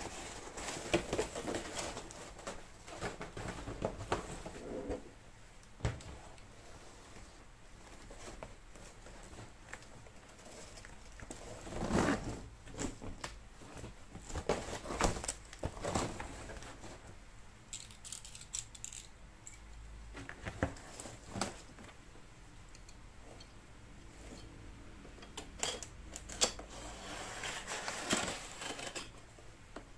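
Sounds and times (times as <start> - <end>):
cardboard rustling and scraping: 0.0 - 5.2, 6.0 - 17.2, 20.2 - 21.9, 26.6 - 29.3.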